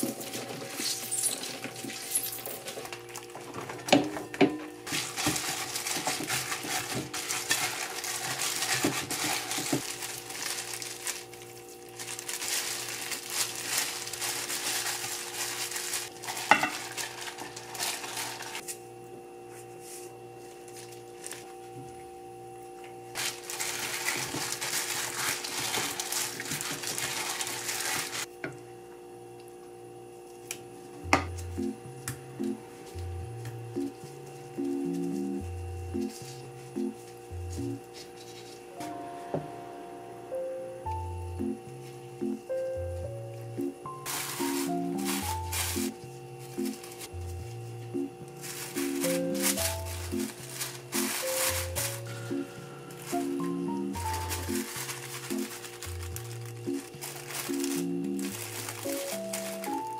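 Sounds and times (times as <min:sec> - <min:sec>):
gloved hand squishing meat: 0:04.8 - 0:18.6, 0:23.2 - 0:28.3, 0:48.3 - 0:52.3, 0:53.1 - 0:59.9
glass bowl clink: 0:16.5 - 0:16.8.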